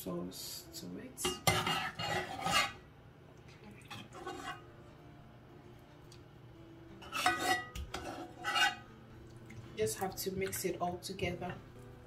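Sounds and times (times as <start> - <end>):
spoon scraping pan: 1.3 - 2.8, 3.9 - 4.7, 7.0 - 8.9.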